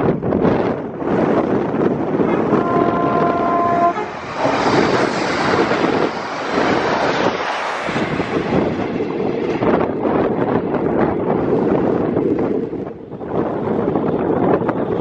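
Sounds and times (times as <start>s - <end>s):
train rushing past on rails: 0.0s - 15.0s
wind on microphone: 0.0s - 15.0s
train horn: 2.2s - 6.2s.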